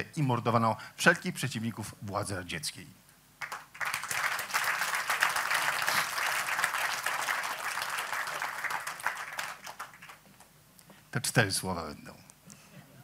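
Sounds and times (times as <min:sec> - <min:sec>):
audience applauding: 0:03.4 - 0:10.3.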